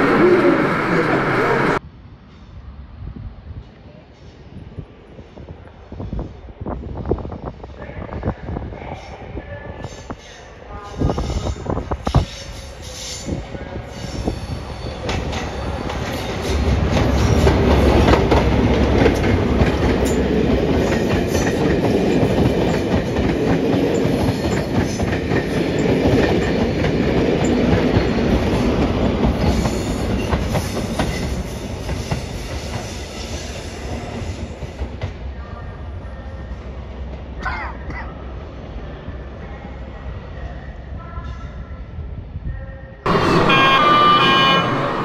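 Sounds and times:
model train rumble: 43.1s - 45.0s.

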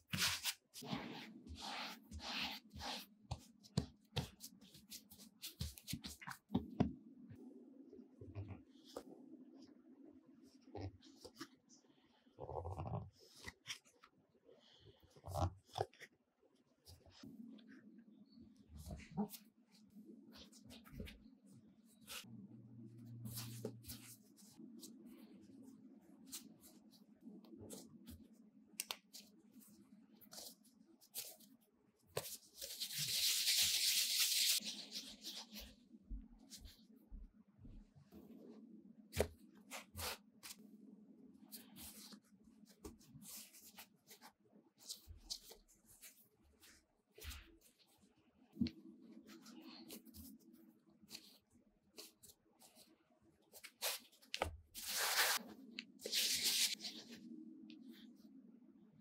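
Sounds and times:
dough rubbing on board: 0.1s - 6.2s.

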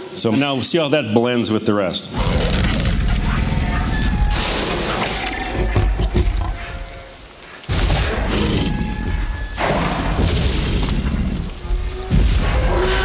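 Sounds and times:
deep booms and crashes: 7.7s - 13.0s.

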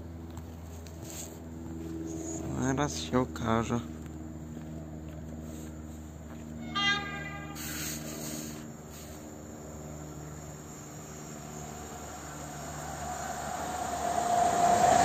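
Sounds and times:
electric train humming: 0.0s - 15.0s
short high train horn toot: 6.6s - 8.3s
brief hiss: 7.3s - 9.3s.

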